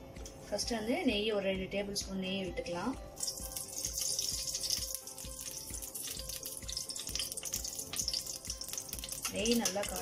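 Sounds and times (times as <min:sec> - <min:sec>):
soft background music: 0:00.0 - 0:10.0
ghee sizzling in a pan: 0:03.2 - 0:10.0.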